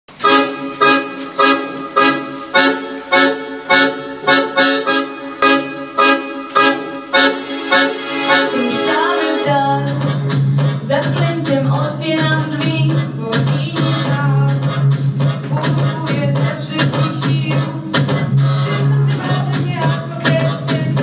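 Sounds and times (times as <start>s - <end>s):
instrumental chords struck: 0.2s - 11.3s.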